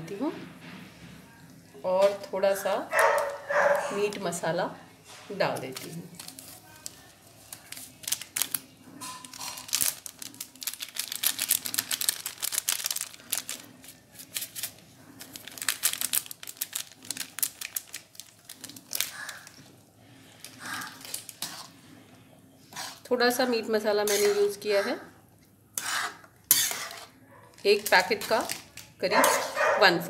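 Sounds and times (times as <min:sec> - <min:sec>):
plastic packet crinkling and clicking: 0:05.8 - 0:19.7, 0:20.4 - 0:21.5, 0:27.4 - 0:29.4.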